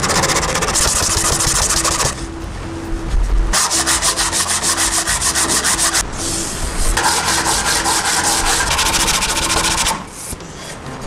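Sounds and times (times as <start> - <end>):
sandpaper scraping wood: 0.0 - 2.2, 3.6 - 6.4, 7.0 - 10.0.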